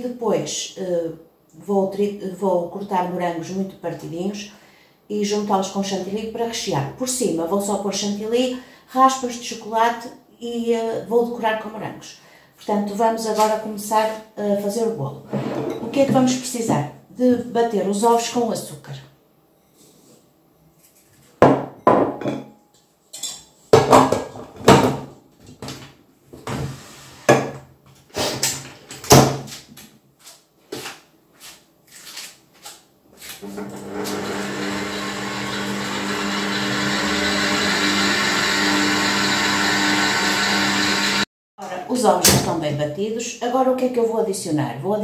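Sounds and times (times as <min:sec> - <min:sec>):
stand mixer whisking hum: 0:33.5 - 0:41.2.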